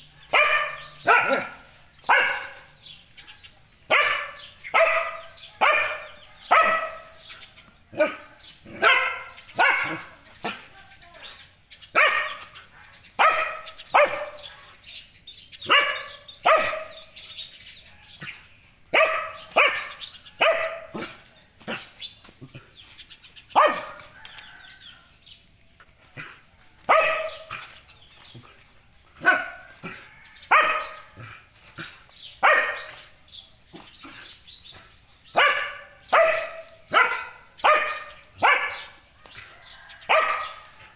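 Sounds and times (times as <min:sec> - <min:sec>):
dog barking: 0:00.1 - 0:10.7, 0:11.9 - 0:14.9, 0:15.6 - 0:17.4, 0:18.0 - 0:22.0, 0:23.5 - 0:25.0, 0:26.2 - 0:27.8, 0:29.2 - 0:40.9.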